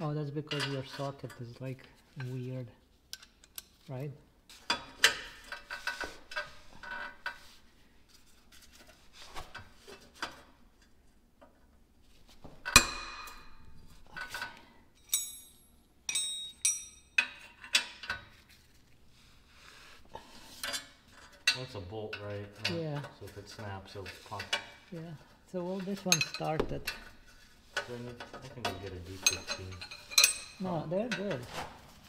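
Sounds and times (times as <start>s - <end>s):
metal tools clinking: 14.1s - 18.2s, 25.7s - 31.4s
knocks: 26.5s - 27.1s.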